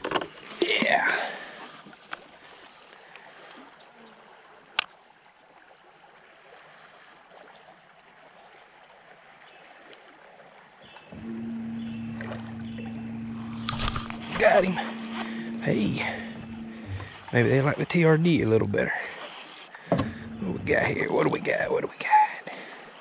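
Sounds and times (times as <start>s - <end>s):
river water running: 0.0s - 23.0s
motor hum: 11.0s - 21.7s
sharp click: 13.6s - 17.3s.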